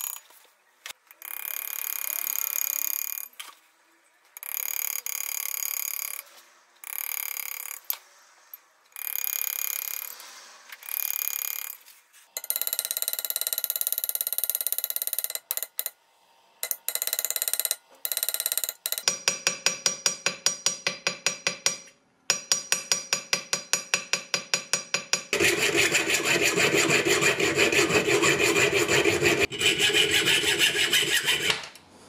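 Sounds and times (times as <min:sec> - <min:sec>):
graver scraping brass: 0:25.4 - 0:31.5.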